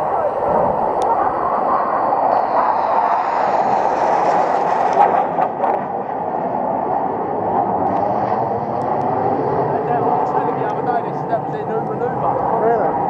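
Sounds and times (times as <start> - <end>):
jets flying overhead: 0.0 - 13.0.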